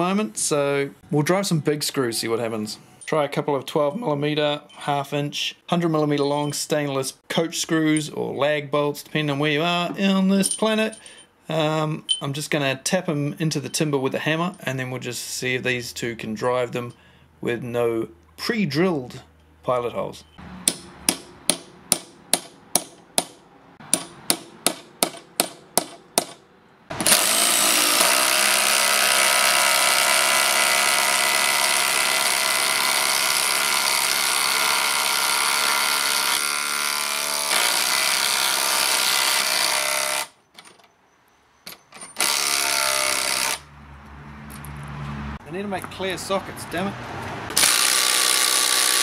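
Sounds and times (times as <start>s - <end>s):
hammer tapping screws: 20.6s - 26.4s
impact driver hammering: 20.6s - 40.3s, 42.2s - 43.6s, 47.5s - 49.0s.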